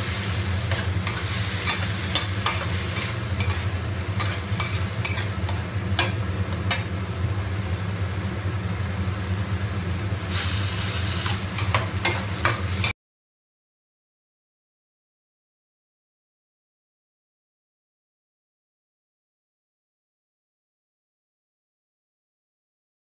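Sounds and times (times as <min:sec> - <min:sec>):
metal spatula scraping wok: 0:00.0 - 0:07.0, 0:10.3 - 0:12.9
food sizzling in oil: 0:00.0 - 0:12.9.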